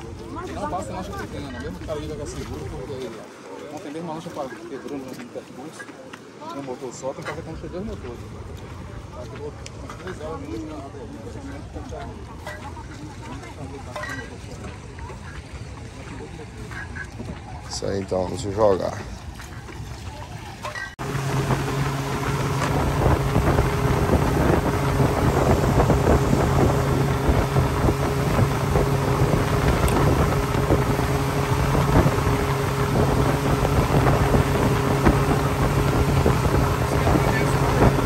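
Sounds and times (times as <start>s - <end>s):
outboard motor running: 0.0s - 38.0s
rushing water: 0.0s - 38.0s
wind buffeting microphone: 19.1s - 38.0s.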